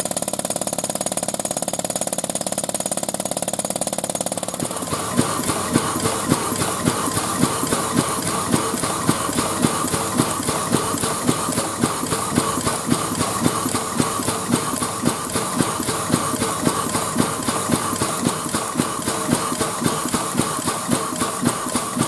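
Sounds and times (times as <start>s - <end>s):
steam air pump beating: 0.0s - 22.0s
constant steam hiss: 4.4s - 22.0s.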